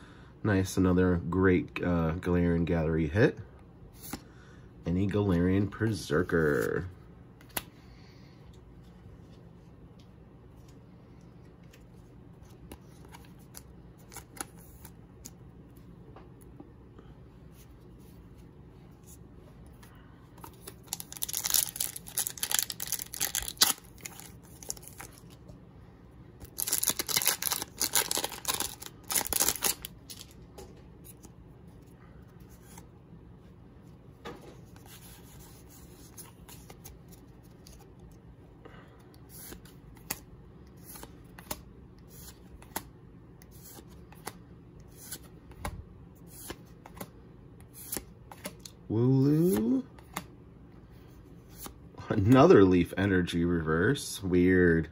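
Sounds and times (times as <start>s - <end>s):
cards clicking and flicking: 7.4s - 7.7s, 26.4s - 30.4s, 49.4s - 50.3s
foil wrapper tearing: 20.8s - 25.3s, 26.5s - 30.3s.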